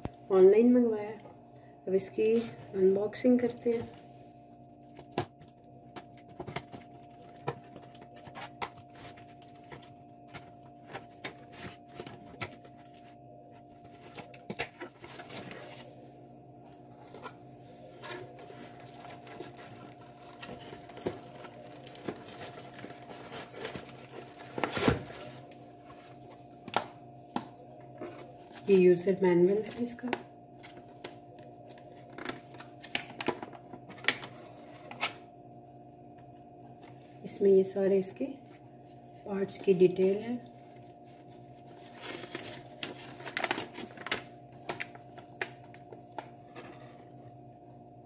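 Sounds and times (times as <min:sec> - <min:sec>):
faint steady hum: 0:00.0 - 0:48.0
paper crackling: 0:04.9 - 0:16.0, 0:17.0 - 0:26.4, 0:40.7 - 0:46.8
packing being handled: 0:18.0 - 0:26.4, 0:40.7 - 0:46.6.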